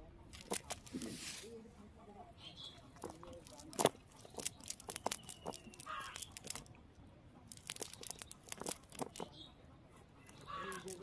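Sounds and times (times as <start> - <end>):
net mesh crackling and rustling: 0.3 - 1.6, 2.9 - 6.7, 7.5 - 9.3, 10.3 - 11.0.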